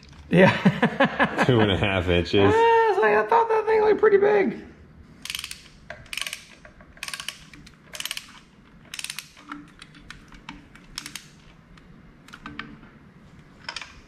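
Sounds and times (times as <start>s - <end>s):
metal tools ratcheting: 5.2s - 11.6s
sharp metallic clicks: 5.2s - 12.7s.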